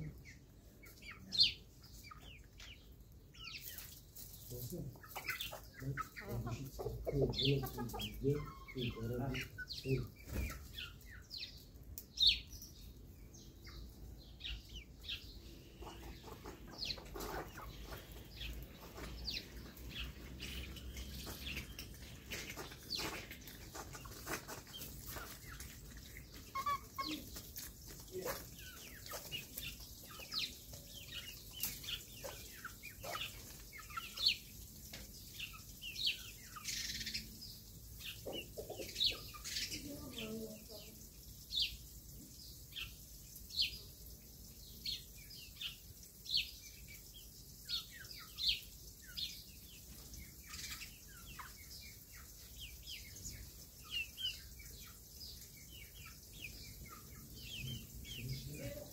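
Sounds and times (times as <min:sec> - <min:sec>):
chickens clucking and chirping: 0:00.0 - 0:58.9
pecking and scratching in gravel: 0:00.8 - 0:12.8, 0:15.9 - 0:34.5.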